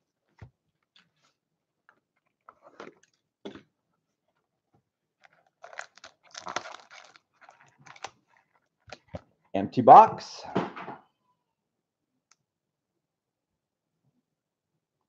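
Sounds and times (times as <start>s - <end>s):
cardboard box rustling: 5.2s - 8.5s
foil and cardboard crinkling: 5.2s - 9.0s.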